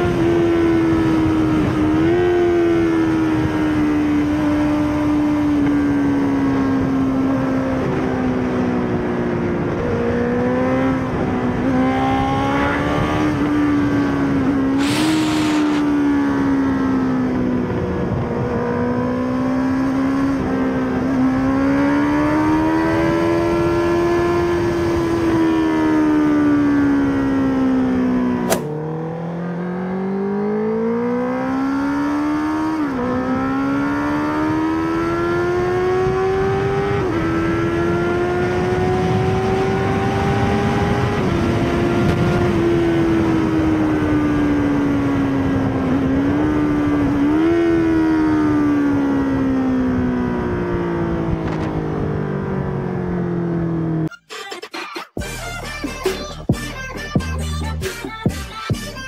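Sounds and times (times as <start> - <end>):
motorcycle engine revving: 0.0 - 54.1
sharp click: 14.8 - 15.9, 28.5 - 28.8.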